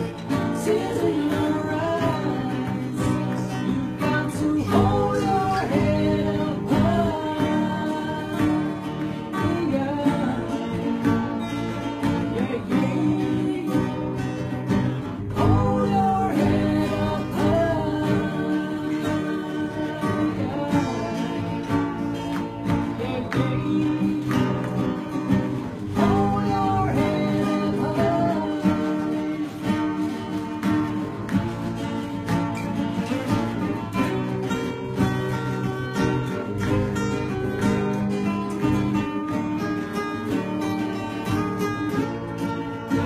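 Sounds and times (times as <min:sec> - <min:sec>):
person singing: 0:00.0 - 0:31.2
acoustic guitars strummed: 0:00.0 - 0:43.0.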